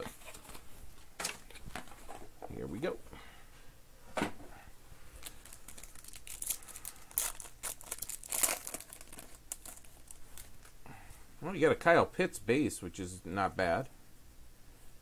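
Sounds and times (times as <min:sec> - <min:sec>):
foil wrapper tearing and crinkling: 0:05.2 - 0:10.8.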